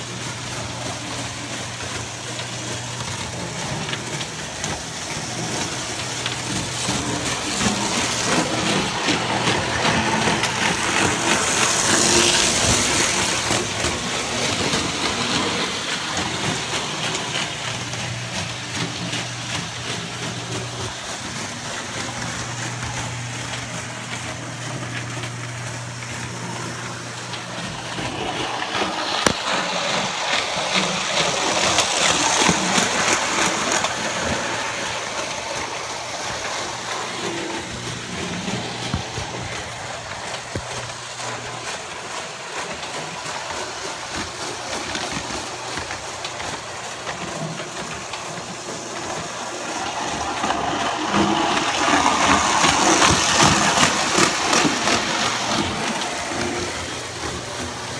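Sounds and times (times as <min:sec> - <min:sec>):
rapid clicks from rails: 0:00.0 - 0:57.9
toy train motor and wheels whirring: 0:00.0 - 0:57.9.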